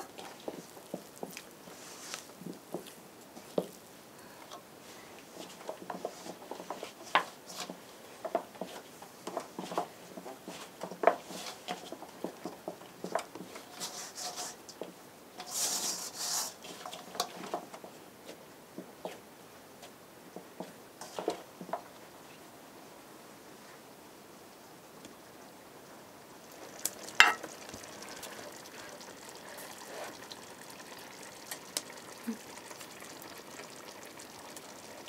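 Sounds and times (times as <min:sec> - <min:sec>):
light knocks against metal bowl: 0:27.2 - 0:27.4.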